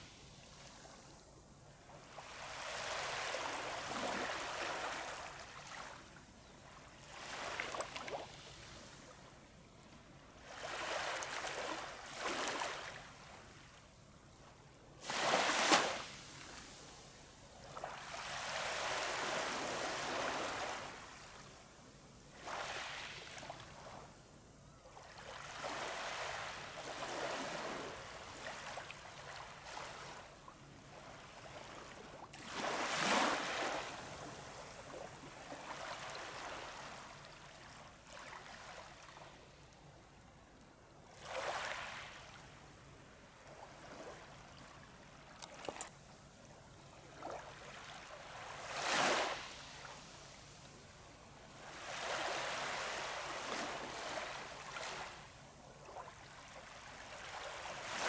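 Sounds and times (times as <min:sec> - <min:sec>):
small waves washing on sand: 0:01.9 - 0:06.1, 0:07.0 - 0:09.2, 0:10.4 - 0:13.4, 0:15.0 - 0:21.6, 0:22.3 - 0:24.1, 0:25.0 - 0:39.4, 0:41.2 - 0:42.6, 0:47.0 - 0:58.0.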